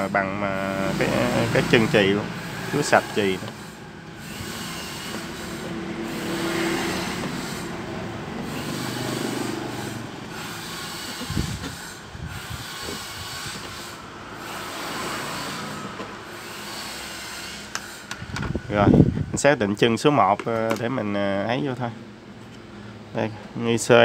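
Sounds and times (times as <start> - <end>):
soldering iron rubbing: 0.0 - 18.1.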